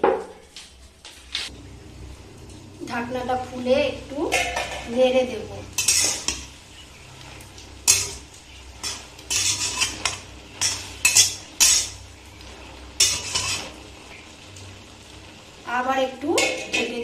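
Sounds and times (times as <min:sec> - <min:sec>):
metal spatula scraping steel pan: 0:05.7 - 0:07.0, 0:07.8 - 0:12.0, 0:13.0 - 0:13.8.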